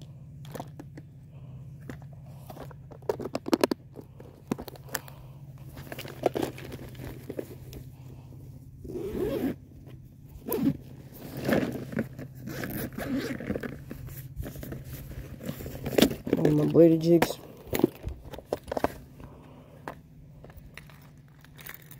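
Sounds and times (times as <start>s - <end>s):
bag being handled: 4.1s - 8.1s, 8.8s - 19.0s
zipper being pulled: 8.8s - 9.6s, 10.4s - 13.9s.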